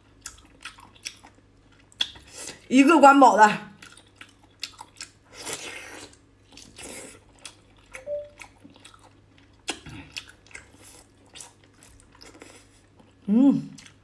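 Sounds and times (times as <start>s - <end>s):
wet chewing sounds: 0.0s - 2.7s, 3.7s - 14.0s.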